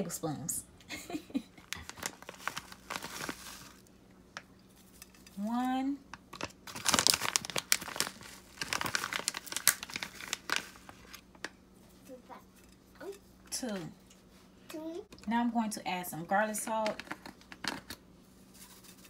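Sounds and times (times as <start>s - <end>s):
seasoning package crinkling: 1.7s - 3.9s, 6.3s - 11.2s.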